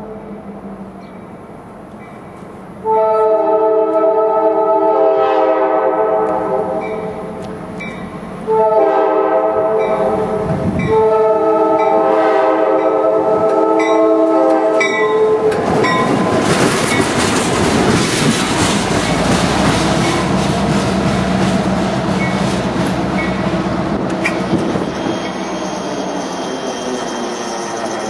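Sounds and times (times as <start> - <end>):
locomotive horn chord: 2.8 - 7.4, 8.4 - 16.1
diesel locomotive engine running: 6.2 - 28.0.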